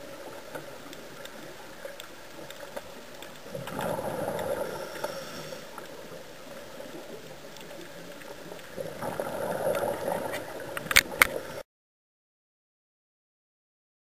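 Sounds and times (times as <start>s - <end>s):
quiet hiss: 0.0s - 11.6s
faint clicks: 0.2s - 11.6s
underwater breath bubbles: 3.5s - 6.2s, 8.7s - 11.6s.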